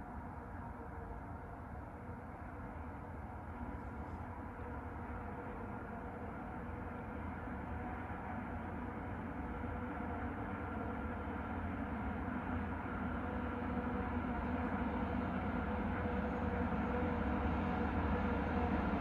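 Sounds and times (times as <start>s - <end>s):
diesel locomotive engine drone: 0.0s - 19.0s.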